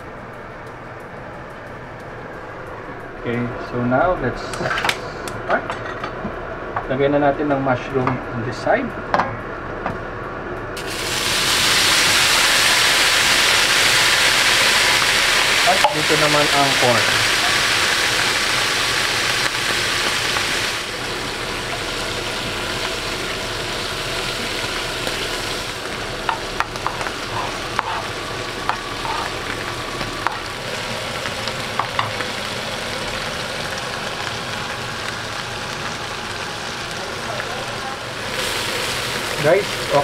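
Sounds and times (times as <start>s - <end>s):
food sizzling in hot oil: 10.8s - 40.0s.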